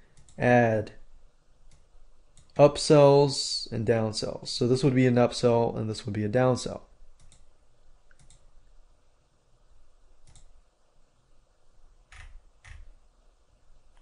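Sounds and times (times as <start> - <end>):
faint room hiss: 0.0 - 14.0
computer mouse clicking: 0.1 - 0.4, 7.2 - 7.5, 8.1 - 8.5, 10.2 - 10.5, 12.1 - 12.9.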